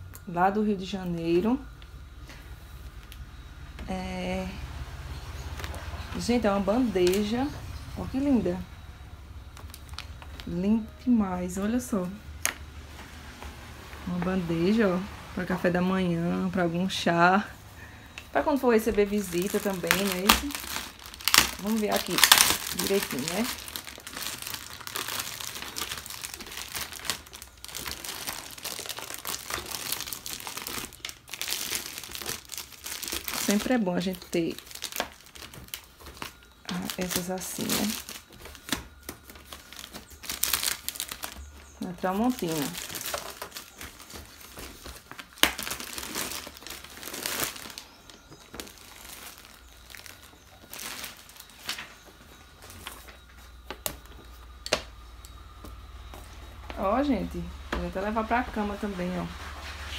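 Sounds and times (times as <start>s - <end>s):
plastic film crinkling: 4.4s - 14.8s, 18.2s - 54.8s.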